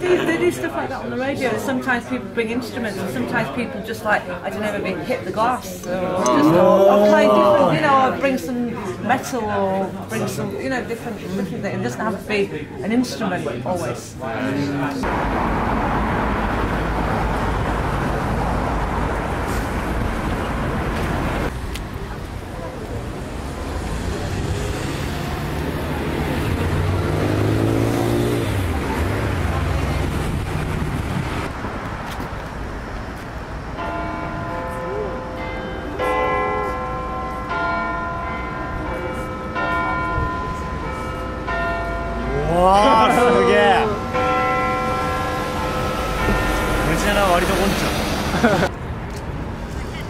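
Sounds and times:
road traffic roar: 0:14.2 - 0:50.0
large bell ringing: 0:33.8 - 0:47.9.

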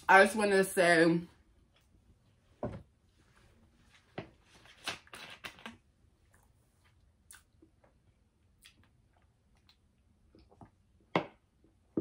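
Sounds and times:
chewing and mouth sounds: 0:06.3 - 0:10.7.

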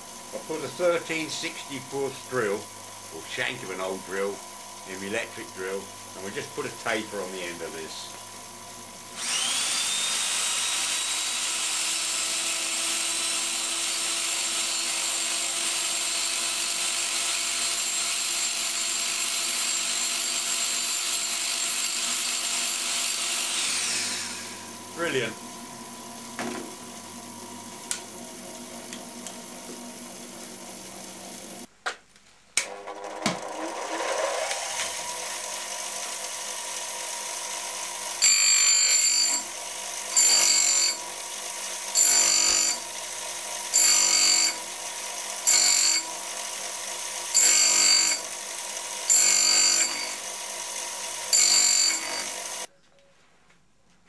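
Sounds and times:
bench grinder running: 0:00.0 - 0:31.7, 0:32.7 - 0:52.7
motor speeding up: 0:09.2 - 0:10.7, 0:23.4 - 0:24.8, 0:33.4 - 0:36.2
high-pitched grinding squeal: 0:38.2 - 0:39.5, 0:40.1 - 0:41.0, 0:43.7 - 0:44.6, 0:49.1 - 0:50.2, 0:51.3 - 0:52.4.

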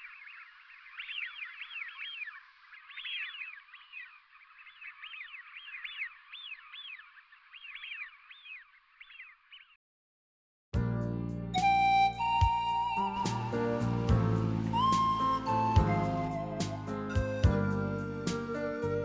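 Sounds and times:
flock of birds calling: 0:00.0 - 0:09.7.

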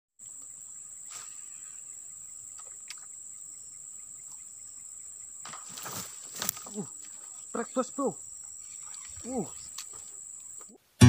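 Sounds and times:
insects buzzing: 0:00.2 - 0:10.8
rustle: 0:00.2 - 0:11.0
faint ticks: 0:02.4 - 0:03.2.

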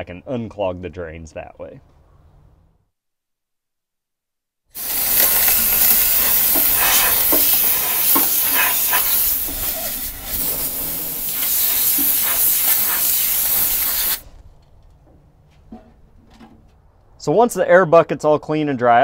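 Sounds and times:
compressed air blow gun hissing: 0:04.8 - 0:14.3.

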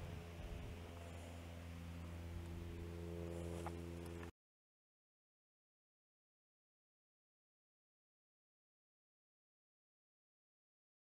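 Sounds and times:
steady low hum: 0:00.0 - 0:04.3.

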